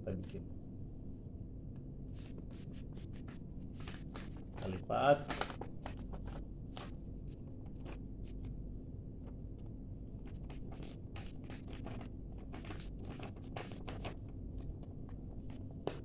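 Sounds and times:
low steady hum: 0.0s - 16.0s
paper crinkling and rustling: 2.2s - 8.6s, 10.2s - 16.0s.

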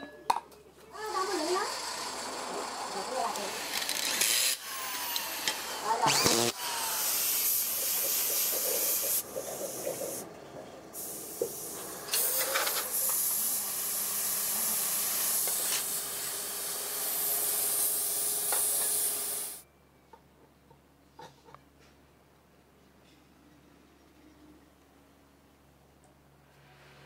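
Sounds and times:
paint spray gun hissing: 4.6s - 10.3s, 11.0s - 19.6s
workshop clatter: 7.4s - 19.6s.

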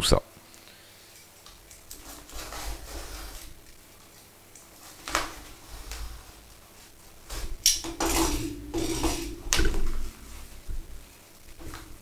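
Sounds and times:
tape and wrapping tearing: 1.8s - 3.8s.

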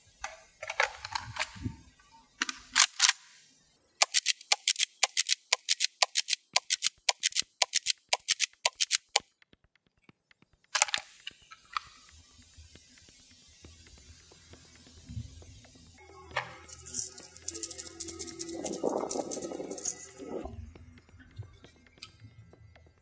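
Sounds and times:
pump clicking and clatter: 4.0s - 9.2s.

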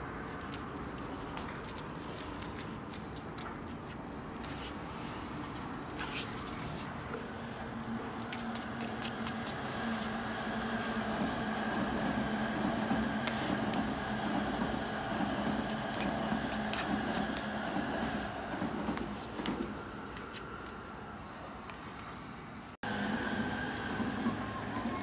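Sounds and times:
traffic rushing past: 4.2s - 25.0s
engine drone: 22.8s - 25.0s.

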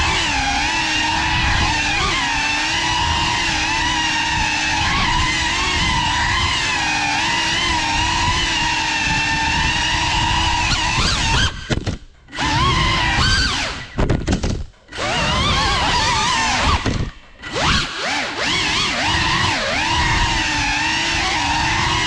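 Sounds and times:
drone motors whining: 0.0s - 14.2s, 14.8s - 22.0s.

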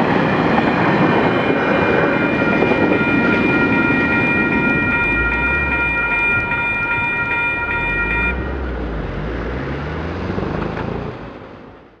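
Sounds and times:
low rumble of passing train: 0.0s - 10.4s
level-crossing alarm bell ringing: 1.5s - 8.8s
vehicle engine pulling away: 5.0s - 12.0s.

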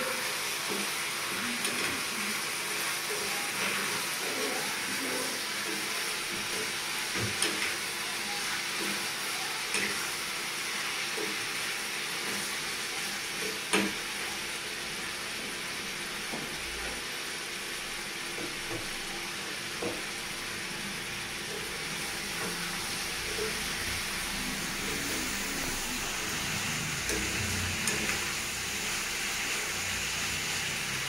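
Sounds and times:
meat sizzling in a pan: 0.0s - 31.0s.

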